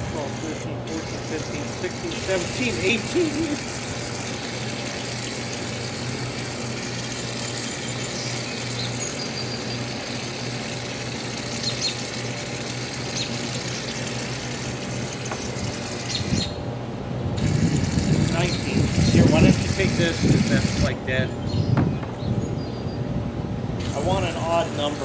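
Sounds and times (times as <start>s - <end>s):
aerosol foam spraying: 0.0s - 8.9s, 17.4s - 20.9s, 23.9s - 25.0s
low mechanical hum: 0.0s - 25.0s.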